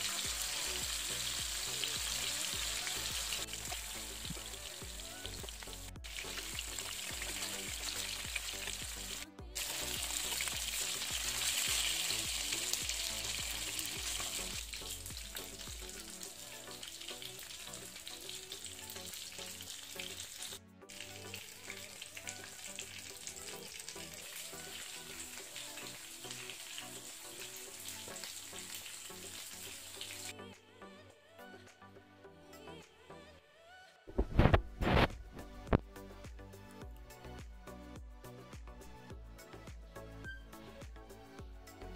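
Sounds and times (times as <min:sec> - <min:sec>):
fish sizzling in hot oil: 0:00.0 - 0:30.4.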